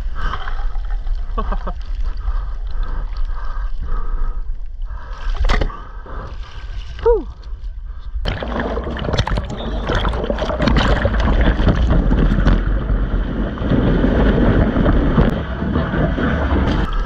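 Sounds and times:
low rumble of water: 0:00.0 - 0:17.0
wind on microphone: 0:09.2 - 0:17.0.

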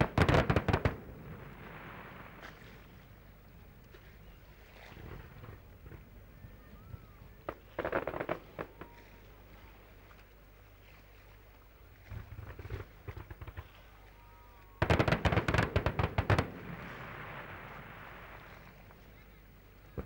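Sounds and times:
fireworks bangs and crackling: 0:00.0 - 0:03.2, 0:07.4 - 0:09.2, 0:12.3 - 0:13.8, 0:14.8 - 0:20.0.

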